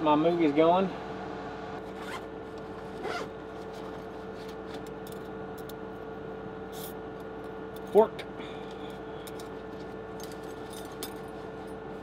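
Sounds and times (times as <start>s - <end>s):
steady machine hum: 0.0s - 12.0s
zipper pulled open: 1.8s - 4.8s.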